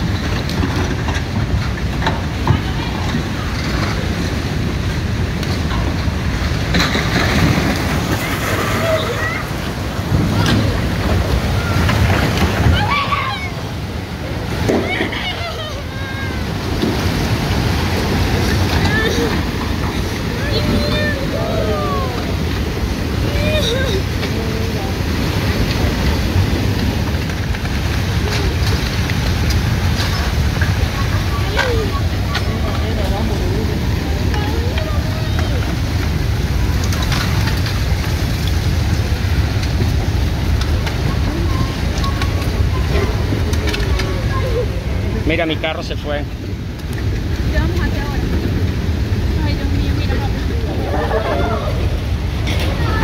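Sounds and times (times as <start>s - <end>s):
floodwater rushing down street: 0.0s - 53.0s.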